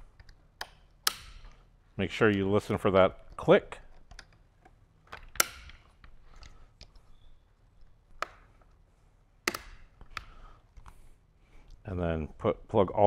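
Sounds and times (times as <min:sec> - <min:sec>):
plastic connectors clicking: 0:00.0 - 0:01.6, 0:03.2 - 0:08.8, 0:09.4 - 0:11.0
wires being handled: 0:00.0 - 0:11.9.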